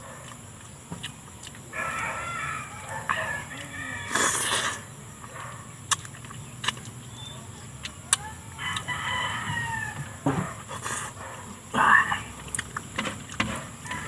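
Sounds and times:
rooster crowing: 0:01.7 - 0:04.4, 0:08.5 - 0:10.4.

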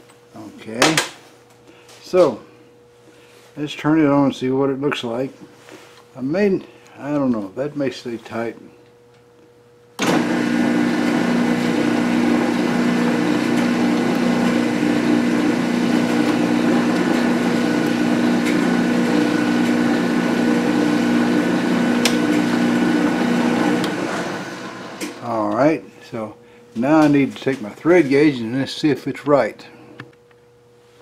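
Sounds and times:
metal lathe motor humming: 0:10.0 - 0:25.3.

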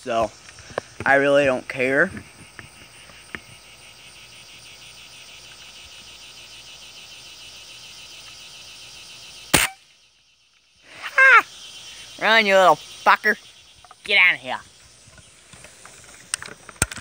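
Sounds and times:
insects chirping: 0:00.0 - 0:17.0
pellet rifle shot: 0:09.5 - 0:09.8.

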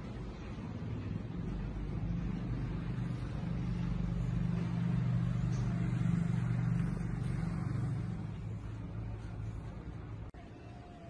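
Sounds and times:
vehicle engine passing by: 0:00.1 - 0:10.3.

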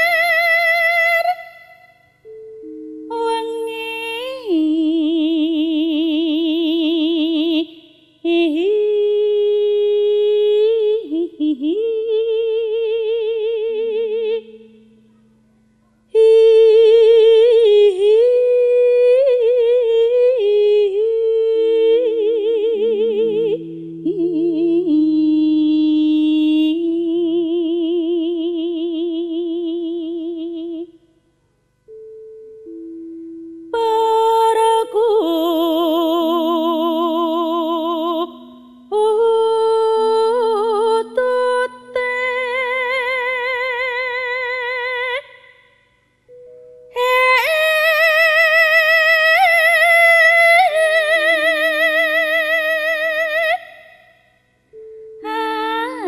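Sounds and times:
woman singing with vibrato: 0:00.0 - 0:15.1, 0:16.1 - 0:31.1, 0:33.6 - 0:56.0.

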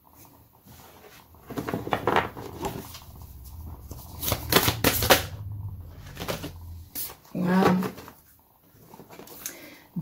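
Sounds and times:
cards rustling: 0:01.5 - 0:05.4, 0:06.0 - 0:07.2.

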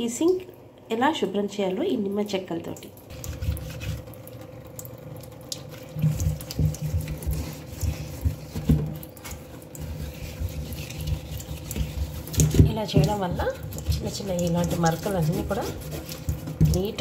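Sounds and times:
lemon scrubbed over steel sink: 0:03.1 - 0:04.6, 0:05.4 - 0:17.0.

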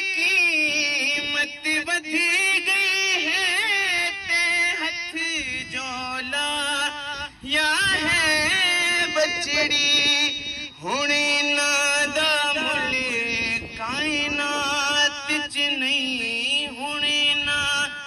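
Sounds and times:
man chanting into microphone: 0:00.0 - 0:18.0.

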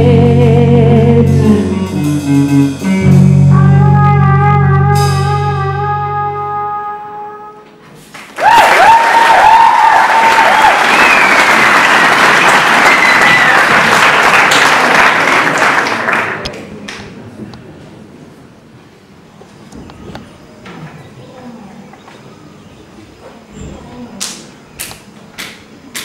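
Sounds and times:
band's held chord: 0:00.0 - 0:07.7
audience applauding: 0:08.1 - 0:17.0
gliding whistles: 0:10.8 - 0:11.6, 0:12.4 - 0:13.8.

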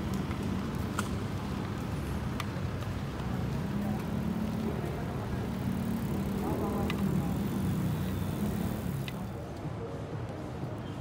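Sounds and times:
city plaza hum and rumble: 0:00.0 - 0:11.0.

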